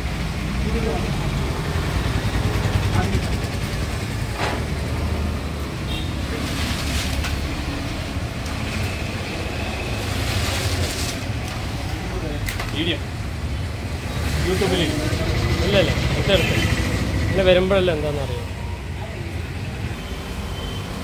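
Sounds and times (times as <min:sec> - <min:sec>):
road traffic rumble: 0:00.0 - 0:21.0
people talking: 0:00.6 - 0:01.6, 0:02.8 - 0:03.5, 0:11.9 - 0:13.1, 0:14.3 - 0:19.6.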